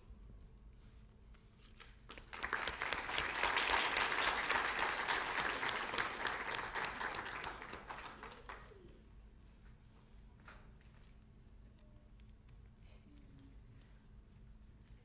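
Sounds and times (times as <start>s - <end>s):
audience applauding: 2.1s - 8.8s.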